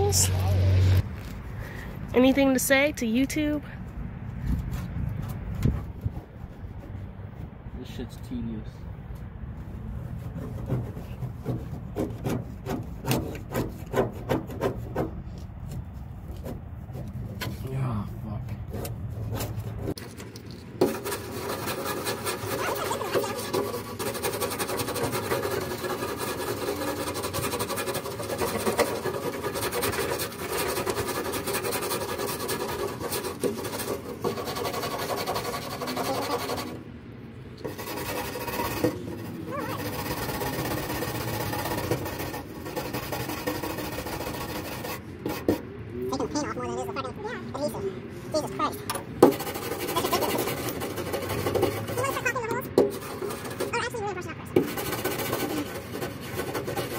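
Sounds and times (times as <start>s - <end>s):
scrapers rasping on sheet metal: 9.9s - 17.7s, 18.6s - 20.2s, 20.8s - 36.9s, 37.6s - 47.8s, 48.4s - 56.9s.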